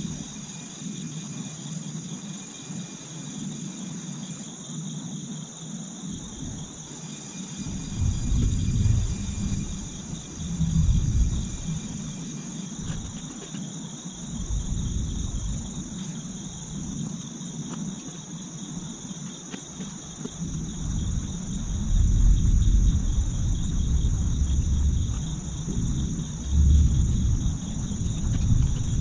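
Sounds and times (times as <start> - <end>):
insects shrilling: 6.1 - 29.0
low rumble: 7.6 - 12.2, 14.3 - 16.9, 20.4 - 29.0.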